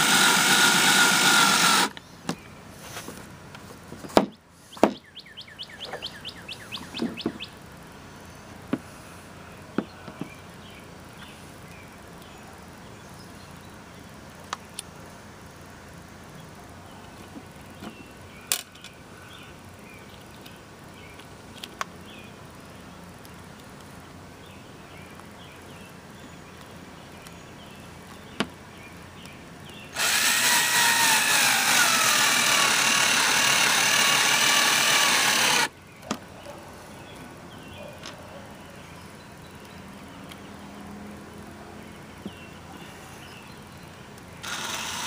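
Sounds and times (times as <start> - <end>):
cordless drill whining: 0.0 - 1.9, 30.0 - 35.7, 44.4 - 45.0.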